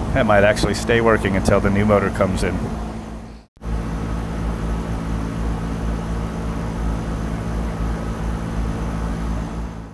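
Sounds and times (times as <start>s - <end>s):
air conditioner fan humming: 0.0s - 9.9s.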